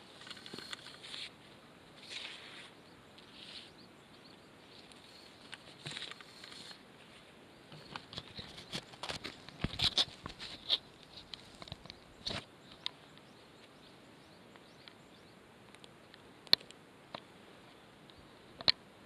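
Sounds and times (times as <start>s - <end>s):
rustling in dry brush: 0.0s - 3.8s, 4.8s - 12.5s.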